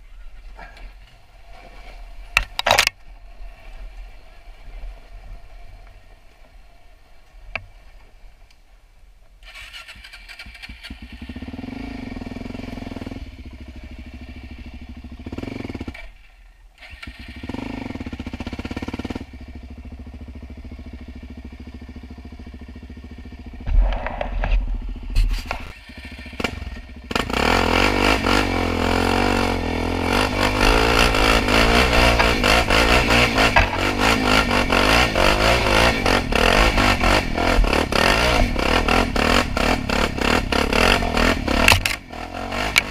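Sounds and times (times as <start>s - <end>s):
quad engine revving: 9.4s - 16.1s, 16.8s - 42.9s.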